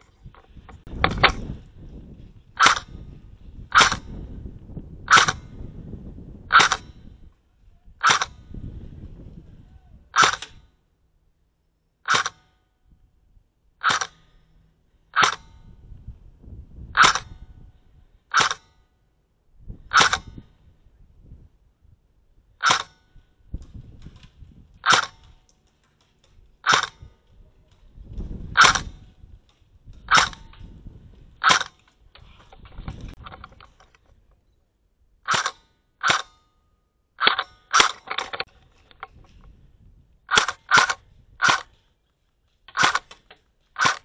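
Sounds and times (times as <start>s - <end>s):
airsoft rifle shots: 2.6s - 3.1s, 3.7s - 4.3s, 5.0s - 5.7s, 6.5s - 7.2s, 8.0s - 8.6s, 10.2s - 10.7s, 12.0s - 12.6s, 13.8s - 14.4s, 15.1s - 15.7s, 16.9s - 17.6s, 18.3s - 18.8s, 19.8s - 20.7s, 22.6s - 25.8s, 26.6s - 27.8s, 28.5s - 29.3s, 30.0s - 30.8s, 31.4s - 33.8s, 35.2s - 36.4s, 37.2s - 39.1s, 40.3s - 41.9s, 42.7s - 44.0s
low rumbling noise: 12.8s - 18.3s.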